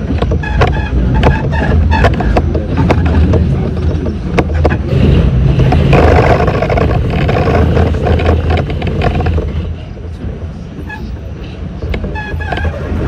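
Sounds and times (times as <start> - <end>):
sharp track clicks: 0.0 - 10.1
subway train running: 0.0 - 13.0
wheels on rails: 0.0 - 13.0.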